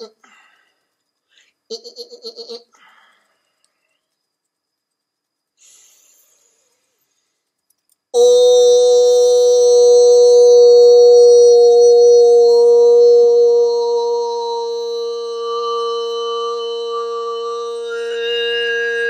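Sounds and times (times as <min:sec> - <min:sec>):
man toning a held note: 0:08.2 - 0:19.0.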